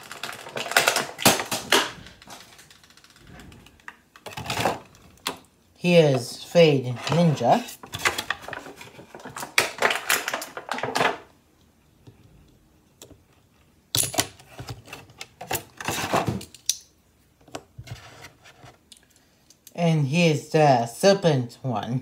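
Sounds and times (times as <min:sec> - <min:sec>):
plastic packaging crackling: 0:00.0 - 0:05.4, 0:07.8 - 0:11.3.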